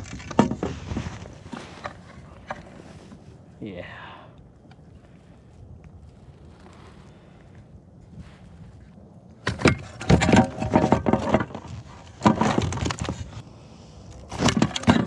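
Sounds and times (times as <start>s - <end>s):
gear clattering and rattling: 9.4s - 13.4s.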